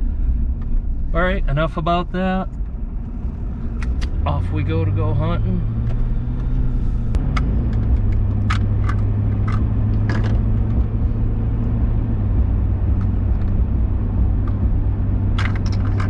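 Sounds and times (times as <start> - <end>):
road and engine rumble in cab: 0.0 - 16.0.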